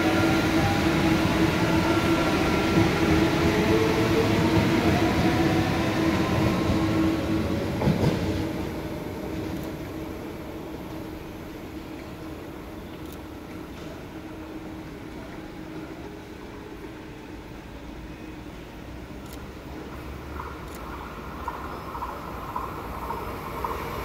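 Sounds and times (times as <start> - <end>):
electric train passing: 0.0 - 24.0
sharp clacks of train wheels: 0.1 - 10.0, 19.4 - 24.0.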